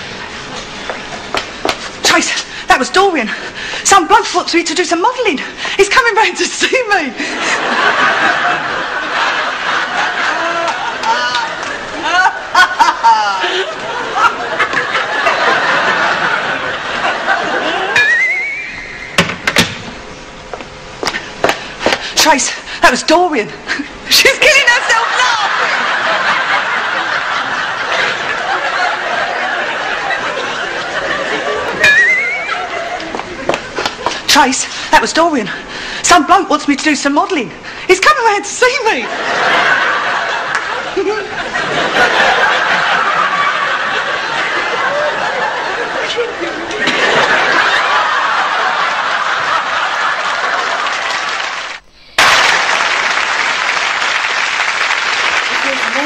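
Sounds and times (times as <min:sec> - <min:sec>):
audience applause: 0:08.5 - 0:12.3, 0:47.7 - 0:56.0
woman giggling: 0:10.3 - 0:14.4, 0:40.9 - 0:41.4.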